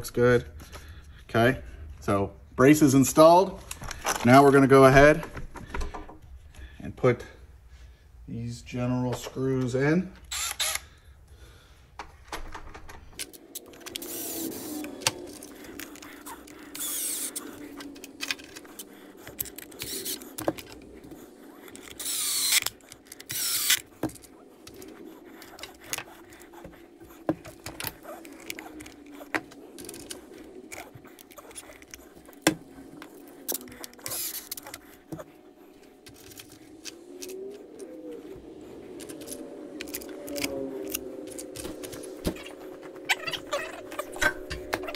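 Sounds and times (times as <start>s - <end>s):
steady low hum: 0.0s - 44.9s
screwdriver bursts: 10.2s - 10.9s, 13.6s - 20.8s, 21.6s - 24.2s.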